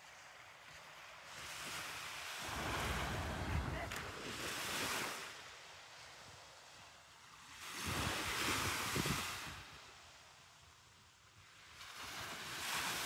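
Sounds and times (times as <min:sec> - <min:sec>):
wind rumble on microphone: 0:00.0 - 0:10.1
small waves breaking on beach: 0:00.0 - 0:13.0.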